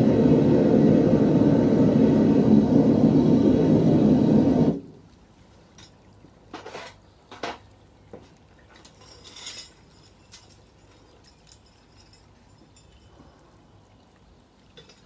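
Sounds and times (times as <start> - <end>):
gas burner rumbling: 0.0 - 5.0
metal clinks and clanks: 8.8 - 13.2, 14.8 - 15.0.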